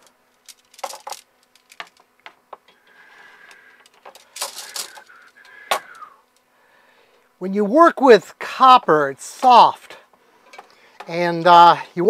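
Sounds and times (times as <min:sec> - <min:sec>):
metal tubing clinking and scraping: 0:00.0 - 0:02.0, 0:03.6 - 0:05.9.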